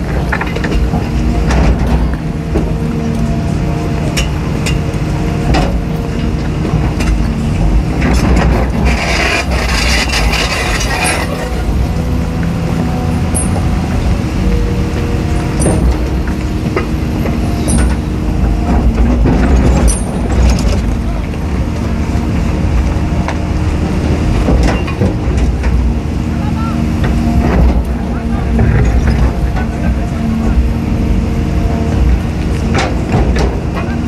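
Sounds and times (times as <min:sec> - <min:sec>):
excavator diesel engine: 0:00.0 - 0:34.0
hydraulic whine: 0:07.4 - 0:25.1.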